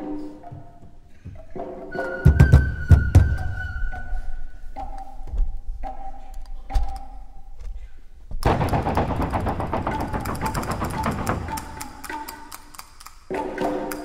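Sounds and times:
wind instrument melody: 0:00.0 - 0:05.2, 0:09.7 - 0:14.0
rapid wooden clicking percussion: 0:08.4 - 0:14.0.

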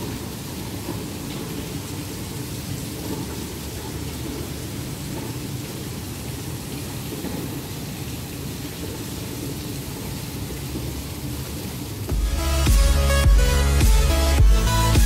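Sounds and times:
electronic music with heavy beat: 0:12.1 - 0:15.0.

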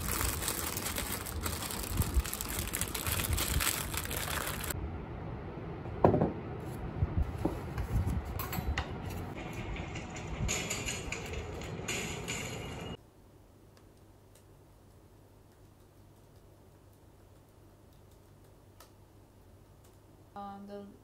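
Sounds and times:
plastic rustling and crinkling: 0:00.0 - 0:04.8
bowl knocking on table: 0:06.0 - 0:06.4.

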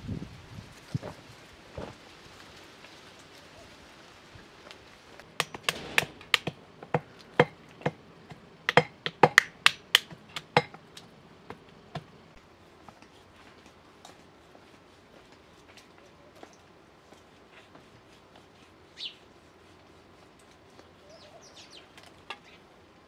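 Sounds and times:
pestle pounding in metal mortar: 0:05.4 - 0:10.8.

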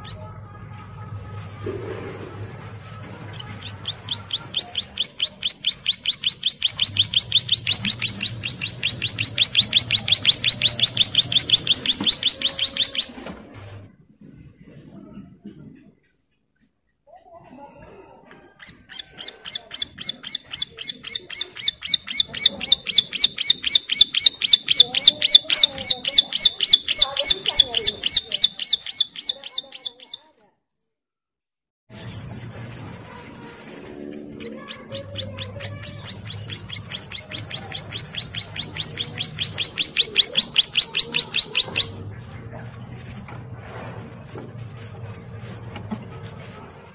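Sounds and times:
bird singing sharp chirps: 0:03.8 - 0:13.2, 0:20.0 - 0:30.2, 0:34.8 - 0:42.0.

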